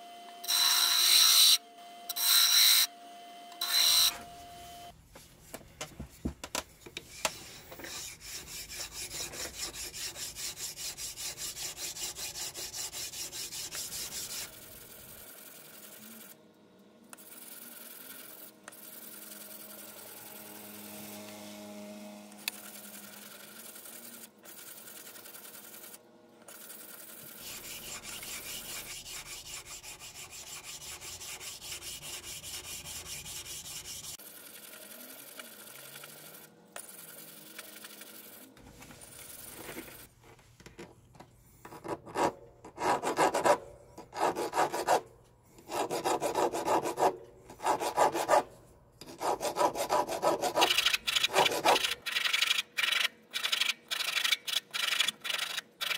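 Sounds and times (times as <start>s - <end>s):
hand file rasping: 7.4s - 14.6s, 26.8s - 34.2s, 42.1s - 45.0s, 45.6s - 52.0s
fast rubbing: 23.2s - 34.2s, 49.2s - 55.9s.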